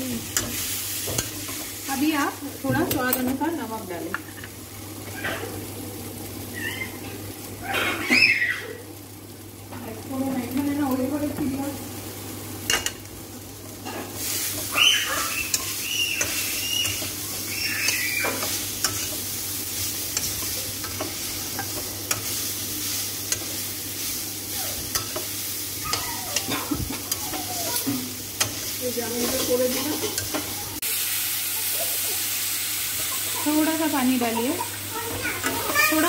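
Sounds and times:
vegetables sizzling in oil: 0.0s - 36.0s.

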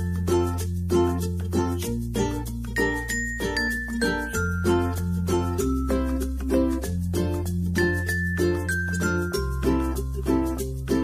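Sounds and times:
background music: 0.0s - 11.0s.

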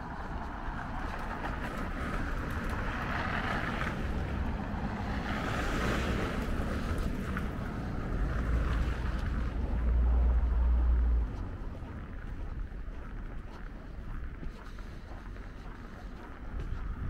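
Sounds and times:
wind rumble on microphone: 0.0s - 17.0s
car tyres hissing on snowy road: 0.3s - 11.5s.

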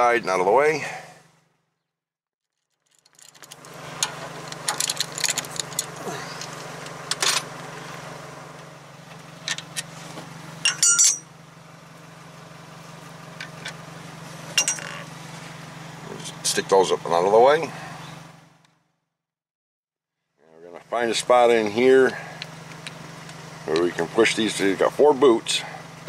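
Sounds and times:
steady low hum: 20.4s - 26.0s.

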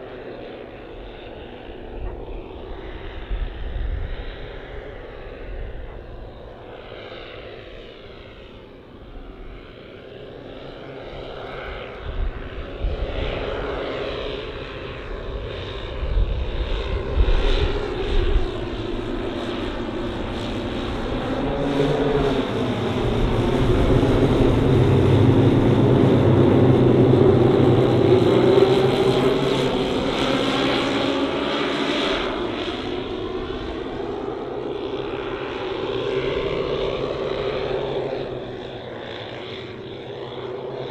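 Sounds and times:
model aircraft engines droning: 0.0s - 40.9s.

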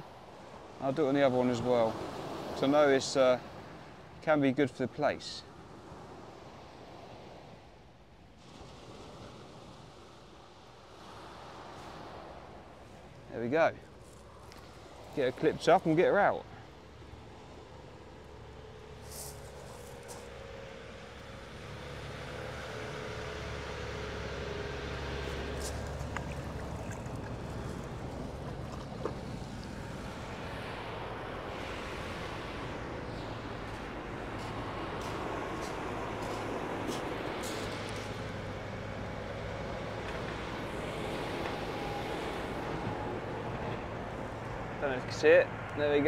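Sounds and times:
surf washing on stones: 8.4s - 16.3s, 25.0s - 38.4s.

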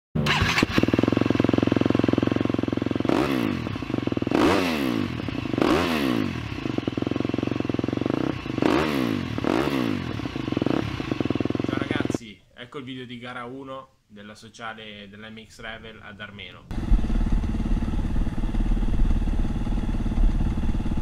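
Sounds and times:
motorbike engine revving: 0.2s - 12.2s, 16.7s - 21.0s.

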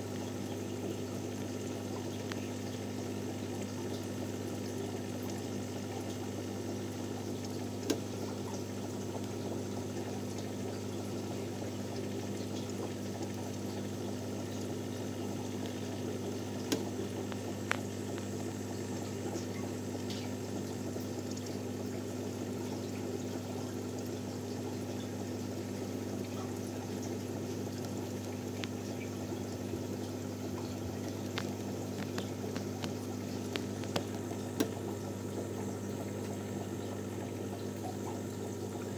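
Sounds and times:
aquarium pump hum: 0.0s - 38.9s
bubbling and trickling water: 0.0s - 38.9s.

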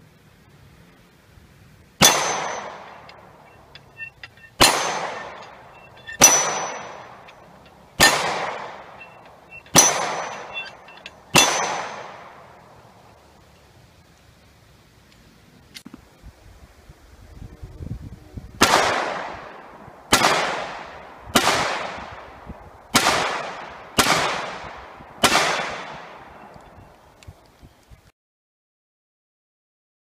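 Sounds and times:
gunshots hitting steel targets: 2.0s - 12.7s, 18.6s - 26.5s.

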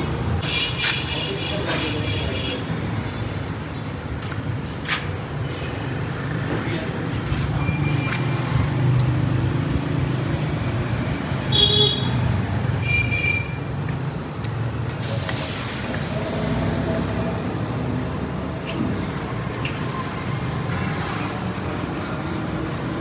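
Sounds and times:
vehicle and workshop rumble: 0.0s - 23.0s
burst of hissing: 15.0s - 17.4s.

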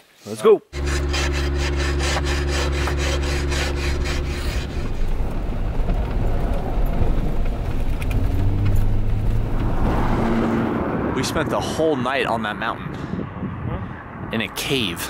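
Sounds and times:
car engine hum: 0.8s - 12.0s
road rumble: 0.8s - 15.0s.

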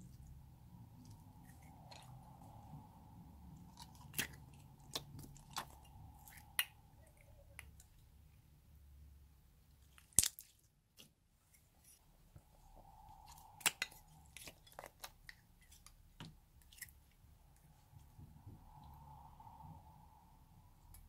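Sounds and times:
sticky clicks and wet pops: 3.7s - 6.8s.

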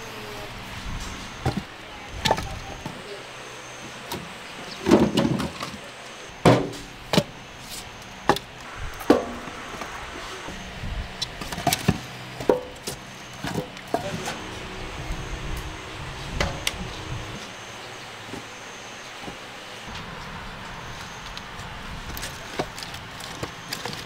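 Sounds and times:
firewood logs knocking and clattering: 1.4s - 3.0s, 4.8s - 7.3s, 11.3s - 14.4s.

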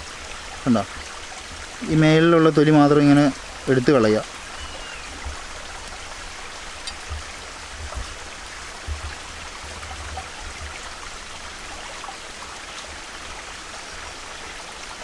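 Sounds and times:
stream rushing: 0.0s - 15.0s
soft low bumps: 5.1s - 11.2s.

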